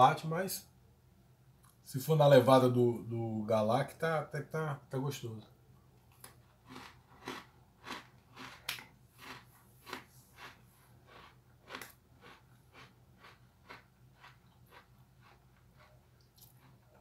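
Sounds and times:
cookie crunching while chewed: 0:06.1 - 0:17.0.

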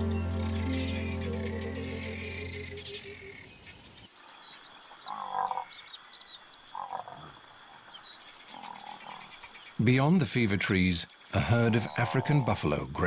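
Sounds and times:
background music: 0:00.0 - 0:03.3
frogs croaking: 0:00.0 - 0:12.7.

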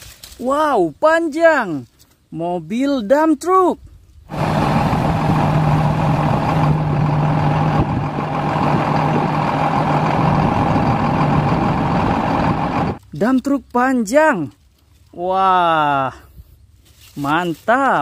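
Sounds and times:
truck engine humming: 0:04.3 - 0:13.0.

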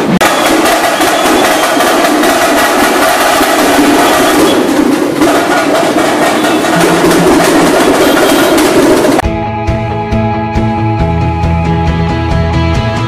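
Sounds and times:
loud festival drumming: 0:00.0 - 0:09.2.

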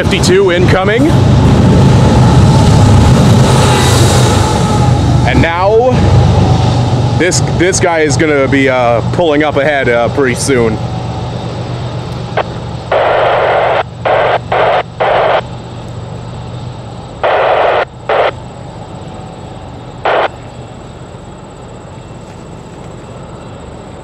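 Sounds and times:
freight train rumbling past: 0:00.0 - 0:24.0
static-like hiss bursts: 0:12.4 - 0:15.4, 0:17.2 - 0:18.4, 0:20.0 - 0:20.3.

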